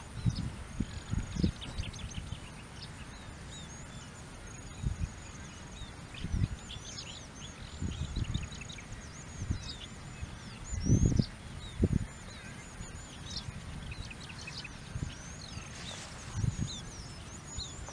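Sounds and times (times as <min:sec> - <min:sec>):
small birds chirping: 0:00.0 - 0:17.9
wind rumble on microphone: 0:00.0 - 0:17.9.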